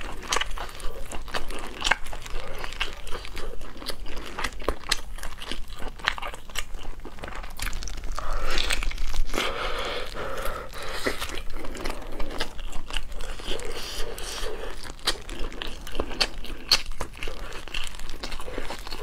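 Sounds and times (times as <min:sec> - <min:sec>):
chewing with wet smacks: 0:00.0 - 0:19.0
plastic gloves crinkling: 0:00.0 - 0:19.0.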